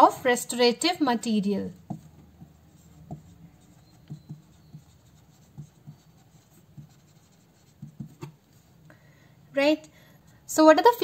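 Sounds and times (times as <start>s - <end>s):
marker writing on whiteboard: 1.7s - 8.9s.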